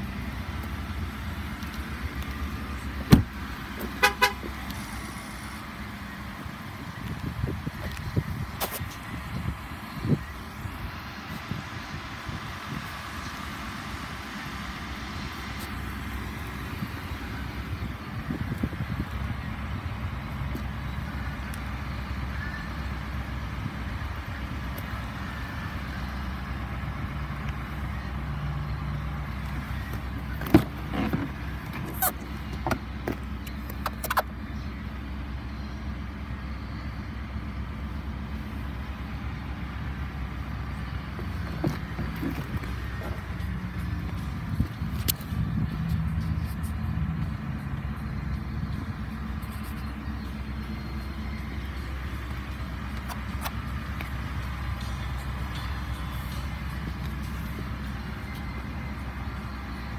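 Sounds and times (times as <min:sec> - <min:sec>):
truck engine idling: 0:00.0 - 0:59.9
car door latch clicking: 0:03.0 - 0:03.9.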